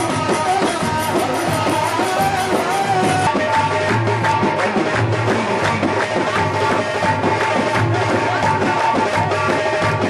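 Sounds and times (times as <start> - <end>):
steady drum beat: 0.0 - 10.0.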